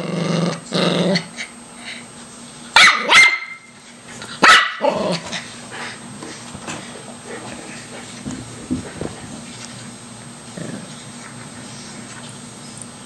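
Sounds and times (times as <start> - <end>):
dog growling: 0.0 - 1.5, 4.8 - 5.4, 10.5 - 11.2
dog barking sharply: 2.8 - 3.7, 4.4 - 4.8.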